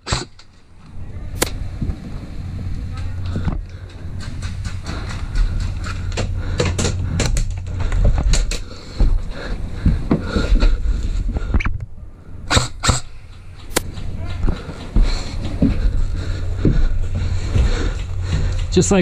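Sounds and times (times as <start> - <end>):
low rumble: 0.6 - 19.0
sharp cracks: 1.4 - 1.9, 12.4 - 15.0
rustling and knocking of gear: 1.7 - 11.6, 13.2 - 19.0.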